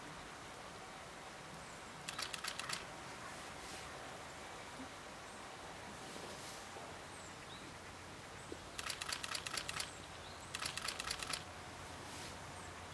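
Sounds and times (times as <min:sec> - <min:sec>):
camera shutter burst clicks: 0:02.1 - 0:02.9, 0:08.8 - 0:11.5.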